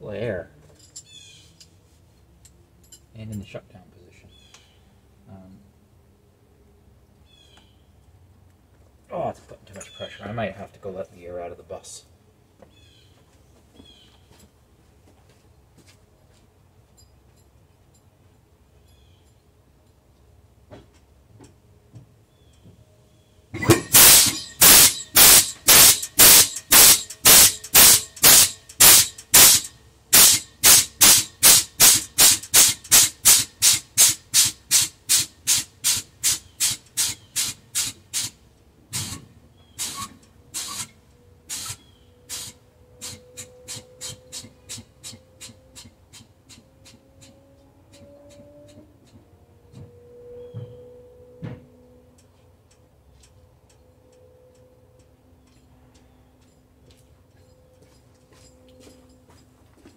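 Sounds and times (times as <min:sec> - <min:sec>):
air hissing from brakes: 0:23.6 - 0:46.3.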